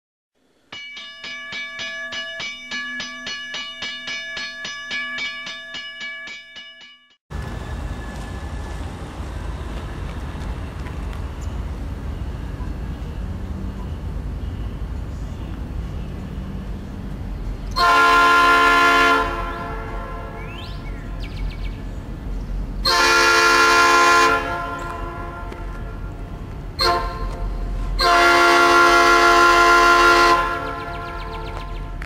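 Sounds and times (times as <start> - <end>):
railroad bell ringing: 0.6 - 7.2, 11.4 - 16.8, 22.9 - 31.6.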